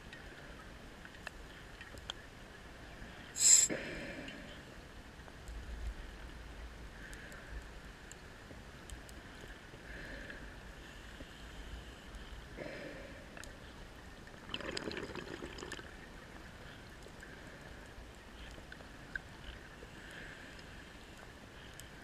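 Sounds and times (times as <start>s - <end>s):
short loud hiss: 3.4s - 3.8s.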